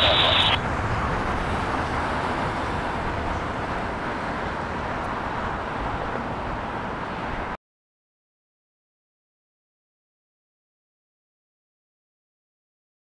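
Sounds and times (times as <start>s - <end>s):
jet airliner engine roar: 0.0s - 7.6s.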